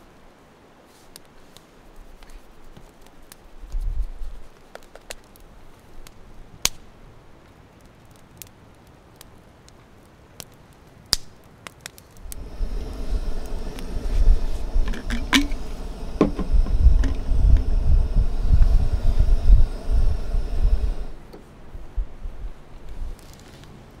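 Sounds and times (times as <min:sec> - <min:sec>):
campfire crackling: 0:00.0 - 0:24.0
low rumble: 0:12.2 - 0:22.6.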